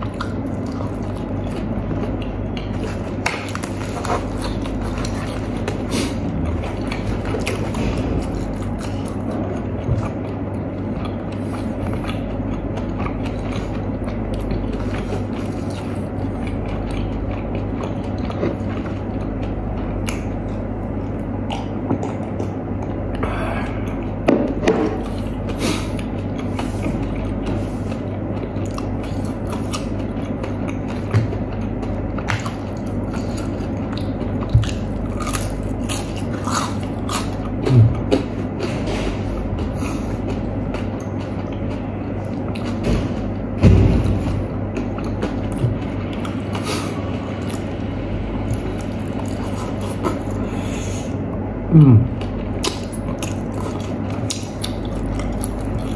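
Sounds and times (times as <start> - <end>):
person chewing fried chicken: 0.0 - 55.9
steady low hum: 0.0 - 55.9.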